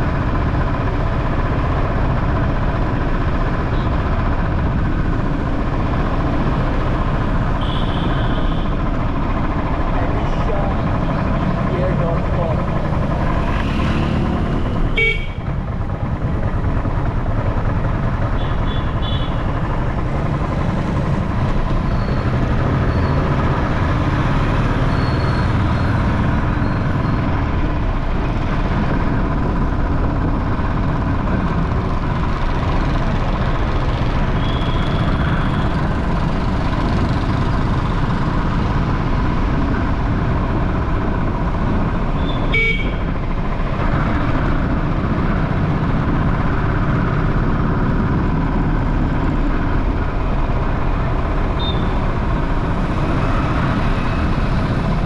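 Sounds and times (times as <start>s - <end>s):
traffic noise: 0.0s - 55.0s
vehicle horns beeping: 15.0s - 15.4s, 42.2s - 43.0s, 51.6s - 52.0s.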